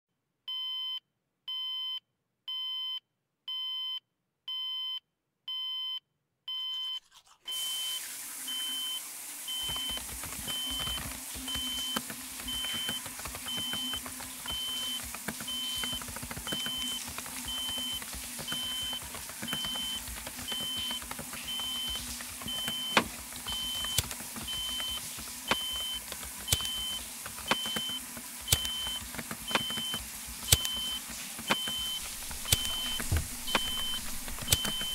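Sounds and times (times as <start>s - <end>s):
electronic beeping: 8.6s - 34.9s
sharp clicks: 9.6s - 34.9s.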